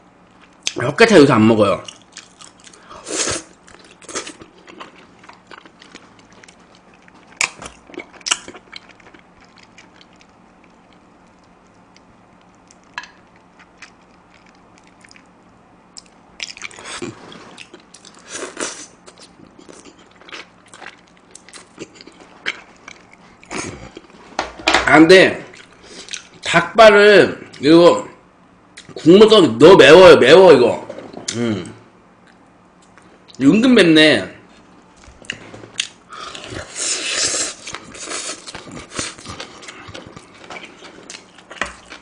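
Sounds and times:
person chewing and lip smacking: 0:01.8 - 0:24.2, 0:25.5 - 0:26.4, 0:35.0 - 0:42.0.

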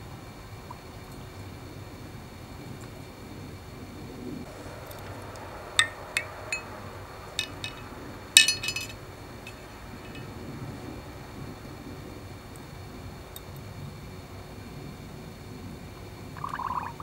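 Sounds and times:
metal hooks clinking against glass jars: 0:07.4 - 0:10.3.

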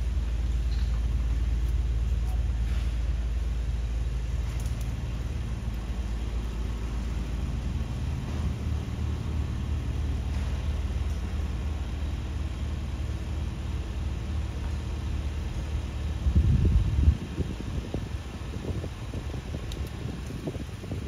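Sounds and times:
low rumble of traffic: 0:00.0 - 0:21.0.

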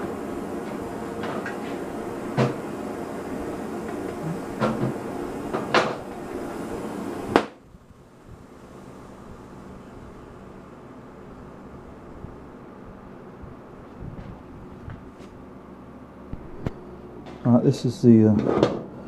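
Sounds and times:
cutting torch flame hissing: 0:00.0 - 0:07.6
torch flame popping off: 0:00.6 - 0:07.6
torch clunks and knocks: 0:00.7 - 0:02.6, 0:03.8 - 0:06.1.

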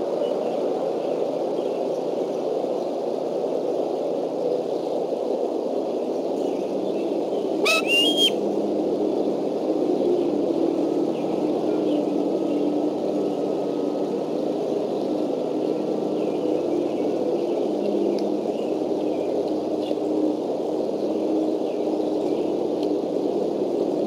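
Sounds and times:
steady rushing background noise: 0:00.0 - 0:24.0
eagle whistled call: 0:07.6 - 0:08.4.

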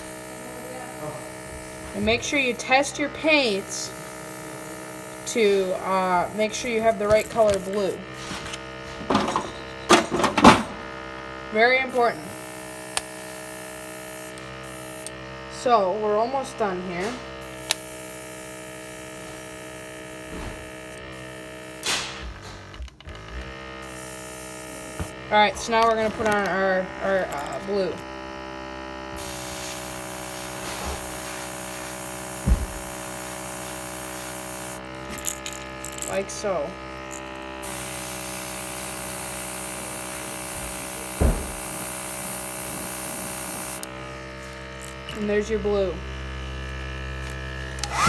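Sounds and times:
airbrush hissing: 0:00.0 - 0:09.2, 0:12.0 - 0:15.1, 0:29.2 - 0:34.9, 0:37.1 - 0:45.4
steady electric hum: 0:00.0 - 0:48.0.

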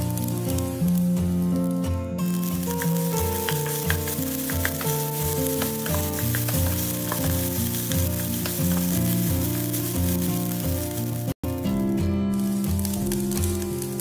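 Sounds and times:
background music with beat: 0:00.0 - 0:14.0
rice sizzling in pan: 0:00.0 - 0:14.0
wooden spatula clicks: 0:02.5 - 0:08.9.

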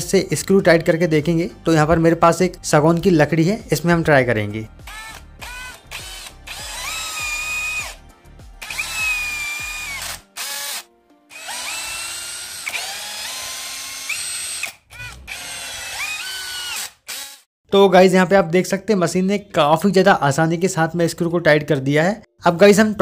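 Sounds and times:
cordless drill motor whine: 0:04.9 - 0:08.0, 0:08.6 - 0:17.4.

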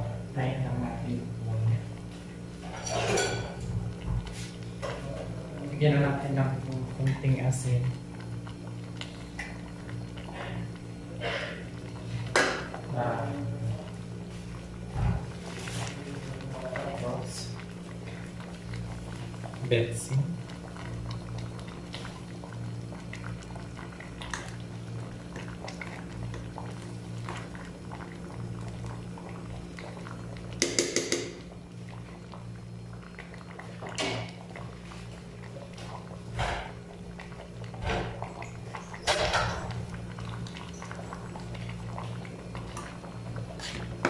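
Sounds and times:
stew simmering: 0:00.0 - 0:44.0.

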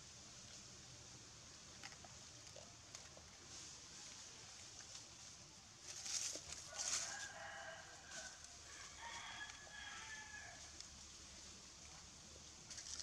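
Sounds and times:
rooster crowing: 0:06.7 - 0:10.8.

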